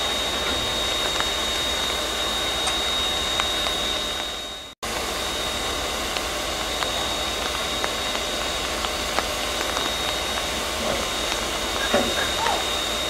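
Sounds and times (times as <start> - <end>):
high whistle-like tone: 0.0 - 6.0, 9.7 - 13.0
steam hissing from locomotive: 0.0 - 13.0.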